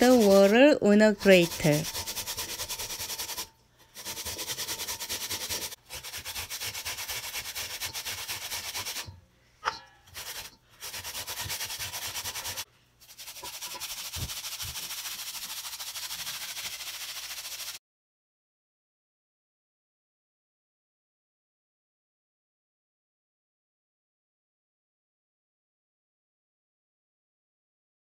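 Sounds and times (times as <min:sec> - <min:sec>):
potatoes rasping on grater: 0:00.0 - 0:09.1, 0:10.1 - 0:17.8.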